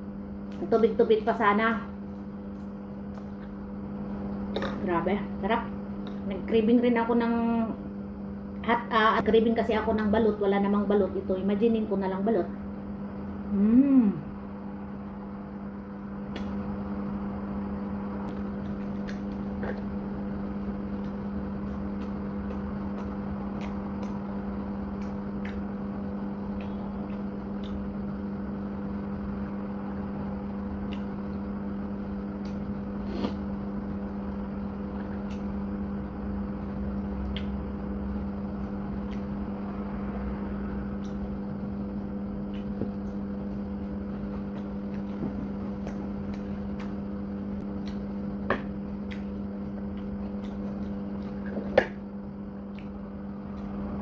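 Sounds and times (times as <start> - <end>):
low machine hum: 0.0 - 54.0
crunching of someone eating: 18.3 - 28.0, 36.9 - 39.5, 40.9 - 54.0.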